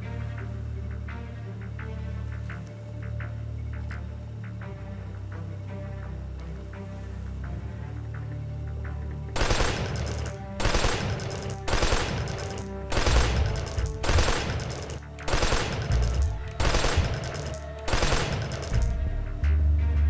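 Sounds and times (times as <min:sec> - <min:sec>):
background music with drone: 0:00.0 - 0:20.0
automatic rifle gunfire: 0:09.4 - 0:19.0.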